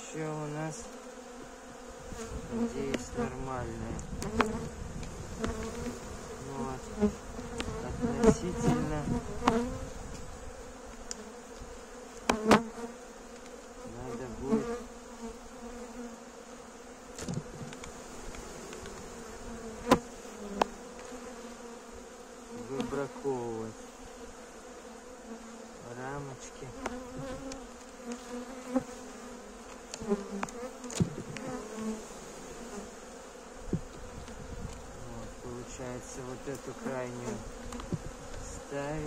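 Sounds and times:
bees humming in a hive: 0.0 - 39.0
hive tool clicking on wooden frames: 0.8 - 3.2, 3.9 - 13.9, 17.1 - 21.5, 22.5 - 23.2, 26.6 - 32.0, 33.5 - 35.4, 36.2 - 39.0.

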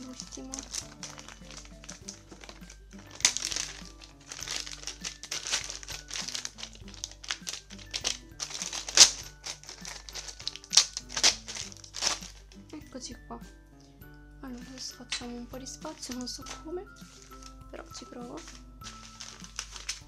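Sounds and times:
plastic bag crinkling: 0.0 - 12.9, 14.5 - 20.0
soft background music: 0.0 - 20.0.

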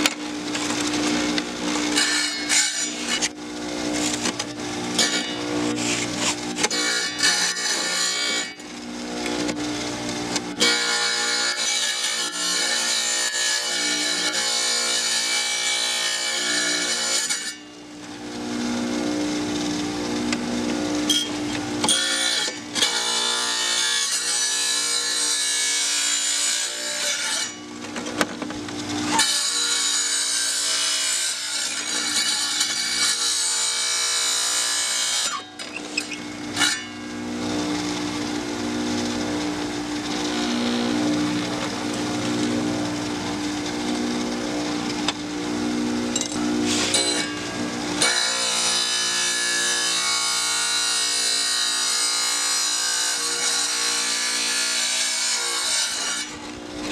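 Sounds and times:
saw motor hum: 0.0 - 56.9
blade grinding through glass: 21.1 - 22.5, 30.6 - 37.0.

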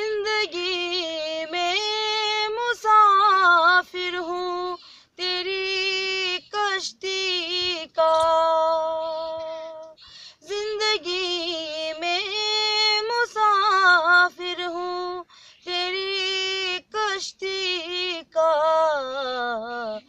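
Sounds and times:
woman breathing: 4.8 - 5.2, 9.5 - 10.5, 15.2 - 15.7.

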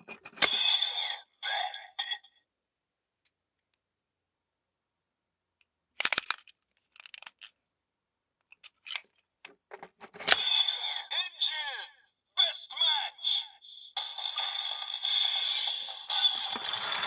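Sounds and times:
plastic toy clicking and rattling: 6.0 - 7.6, 8.5 - 9.2, 10.0 - 10.6, 16.0 - 17.0.

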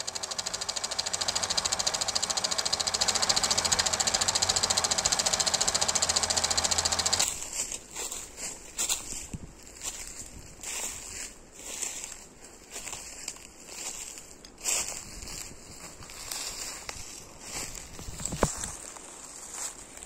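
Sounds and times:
film projector clattering: 0.0 - 7.3
outdoor noise: 0.0 - 20.0.

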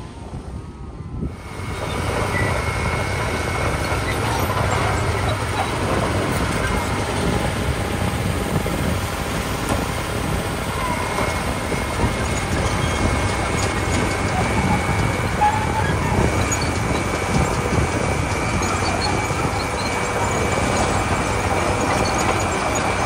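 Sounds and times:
bulldozer diesel engine running: 1.2 - 23.0.

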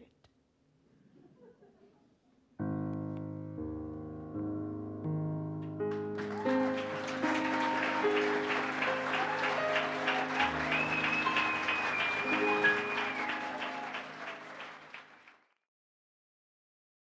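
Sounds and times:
piano chords ringing: 2.6 - 14.9
audience applauding: 5.8 - 15.5
long high whistle: 6.4 - 14.7.

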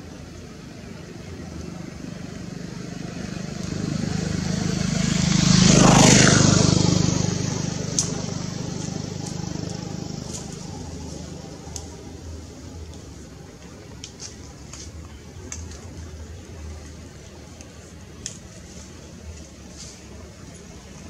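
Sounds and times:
motor vehicle passing by: 1.3 - 12.9.

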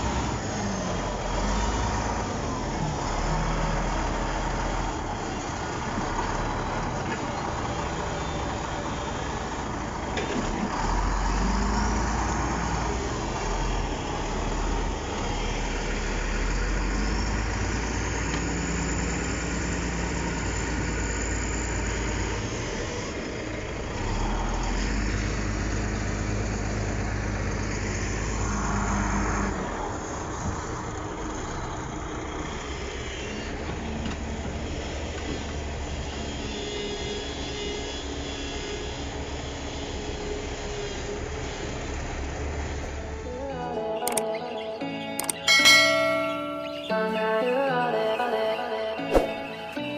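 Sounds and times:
heavy diesel engines rumbling: 0.0 - 49.9.

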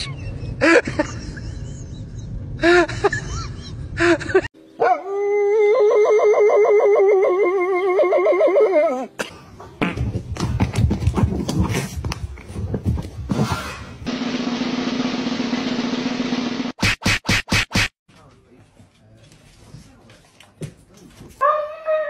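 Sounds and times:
dog howling: 4.8 - 9.1, 21.4 - 22.0.

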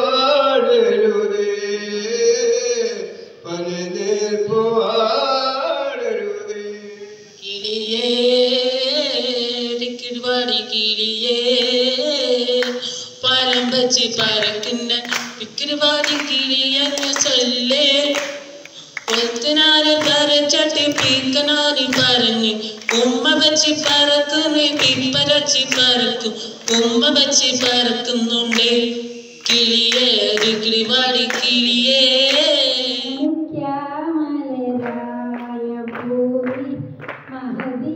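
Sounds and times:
man singing into microphone: 0.0 - 33.3
hand claps: 12.5 - 32.7, 34.8 - 37.8.

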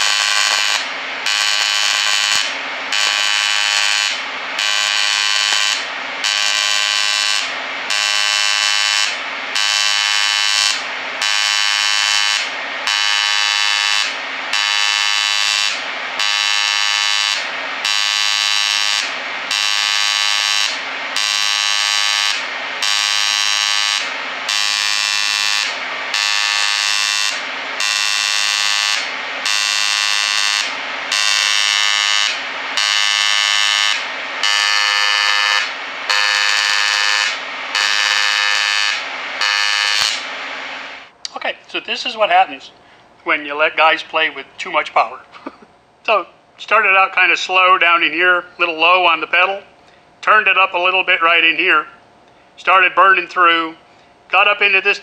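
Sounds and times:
pulsing welding arc buzz: 0.0 - 41.2.

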